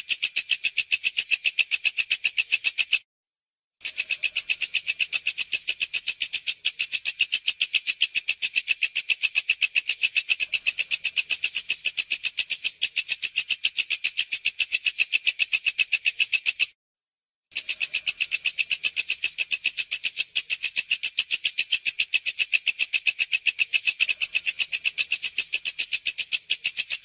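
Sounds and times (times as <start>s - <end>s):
bush cricket chirping: 23.2s - 27.0s.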